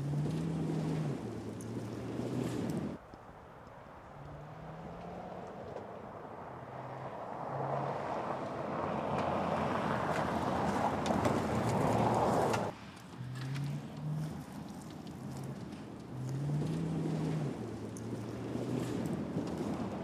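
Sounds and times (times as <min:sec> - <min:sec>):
tyres crunching on gravel: 0:00.0 - 0:03.1, 0:08.7 - 0:20.0
low car engine: 0:00.0 - 0:20.0.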